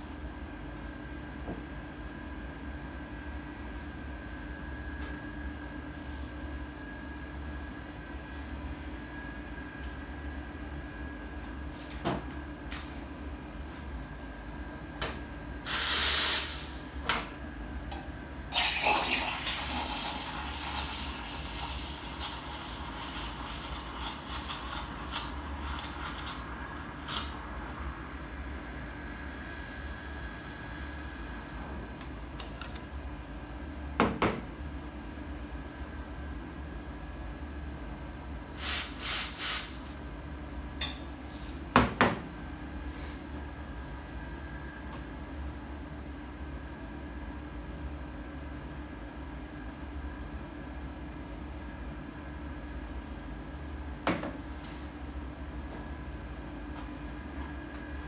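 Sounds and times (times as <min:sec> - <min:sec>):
steam wand hissing: 0:15.7 - 0:16.8.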